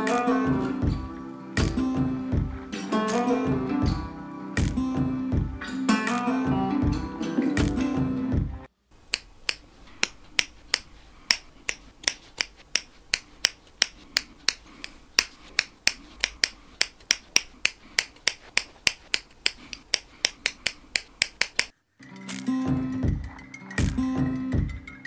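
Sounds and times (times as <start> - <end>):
knitting needles clicking: 8.9 - 22.5.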